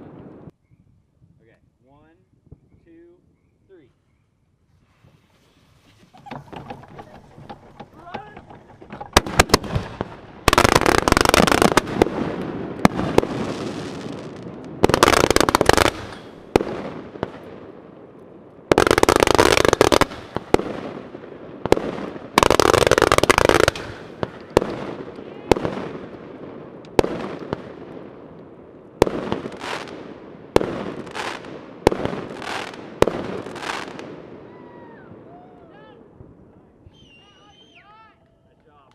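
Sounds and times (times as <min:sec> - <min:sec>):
fireworks crackling: 0:04.7 - 0:34.6
fireworks sharp bangs: 0:05.8 - 0:18.0, 0:18.6 - 0:34.5.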